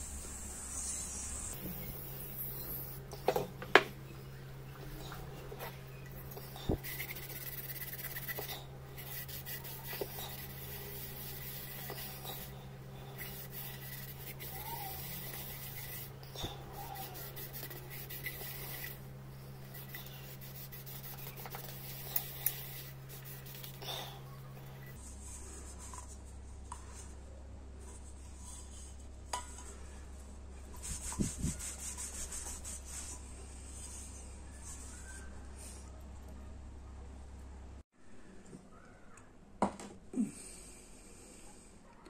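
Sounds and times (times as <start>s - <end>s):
cloth scrubbing copper bowl: 6.2s - 19.1s.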